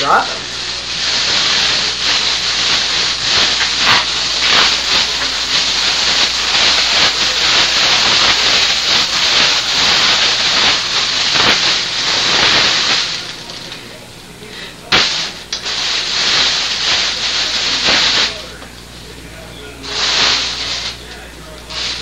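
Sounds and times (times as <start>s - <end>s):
plastic bag rustling and crinkling: 0.8s - 13.9s.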